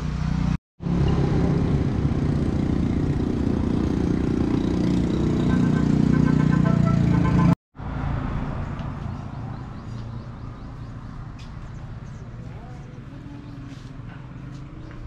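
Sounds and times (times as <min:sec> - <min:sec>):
vehicle engine rumble: 0:00.0 - 0:15.0.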